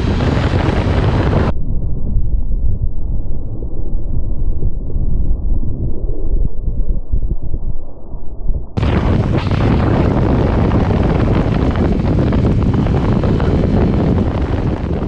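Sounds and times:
motorcycle engine and road noise: 0:00.0 - 0:01.5, 0:08.8 - 0:15.0
wind rushing over microphone: 0:00.0 - 0:15.0.

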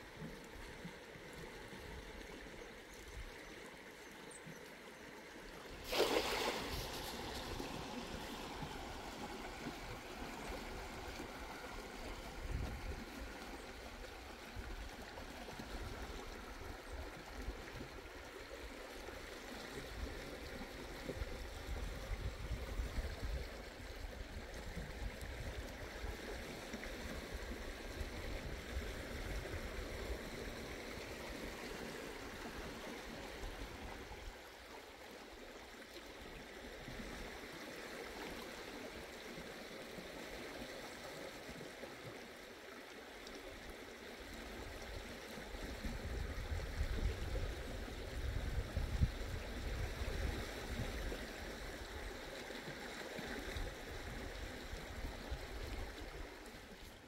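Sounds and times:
sea water rushing and splashing: 0:05.7 - 0:18.8
wind rumble on microphone: 0:12.2 - 0:13.2, 0:21.0 - 0:26.2, 0:45.6 - 0:52.1.

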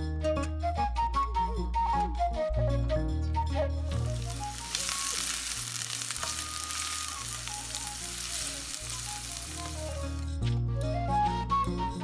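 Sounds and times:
onions sizzling in hot oil: 0:03.9 - 0:10.3.

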